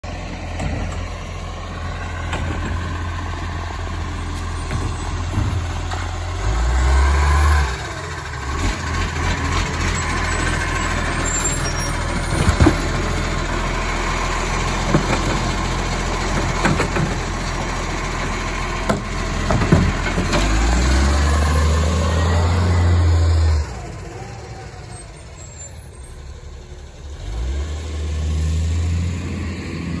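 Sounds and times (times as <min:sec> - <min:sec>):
garbage truck engine running: 0:00.0 - 0:28.2
wheelie bin knocking and clattering: 0:18.9 - 0:20.5.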